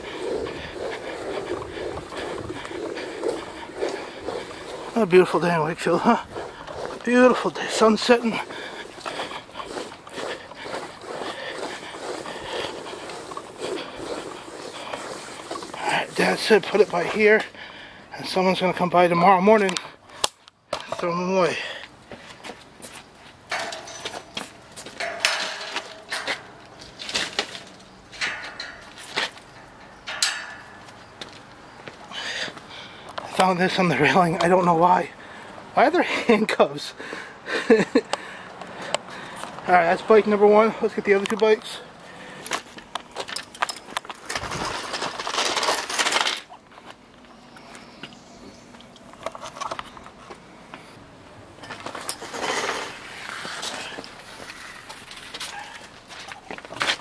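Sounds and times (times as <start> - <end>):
bicycles clinking and rattling: 0.0 - 18.0, 23.4 - 31.5, 37.1 - 47.0, 51.6 - 57.0
bicycle clanking against metal railing: 23.5 - 30.9.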